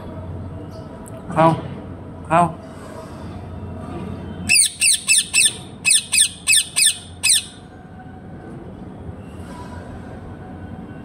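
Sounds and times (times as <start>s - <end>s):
parrot high calls: 4.5s - 7.6s.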